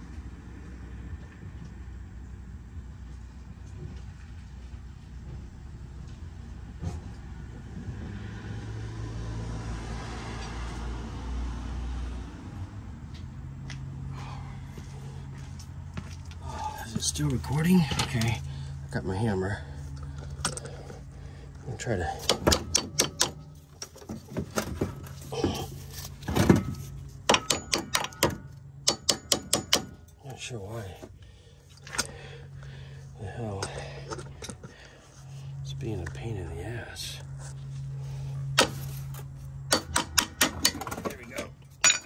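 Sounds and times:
vehicle engine running: 0:09.9 - 0:42.0
sharp metallic clicks: 0:22.2 - 0:23.5, 0:27.3 - 0:30.2.

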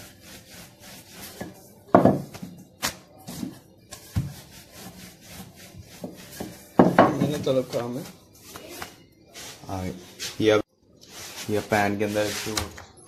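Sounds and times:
dough knocks and thumps: 0:01.4 - 0:04.5.

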